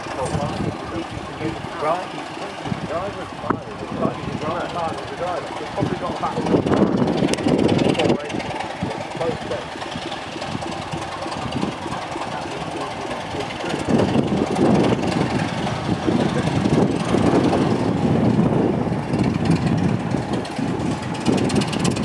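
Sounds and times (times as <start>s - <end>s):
diesel locomotive engine drone: 0.0s - 22.0s.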